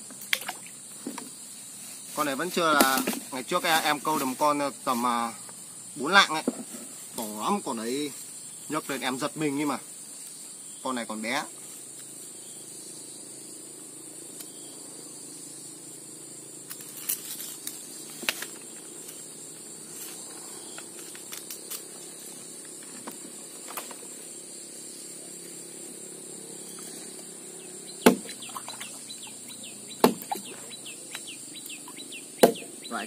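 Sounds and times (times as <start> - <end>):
high insect drone: 0.0 - 33.0
sharp whacks: 28.0 - 28.9, 30.0 - 30.5, 32.4 - 32.7.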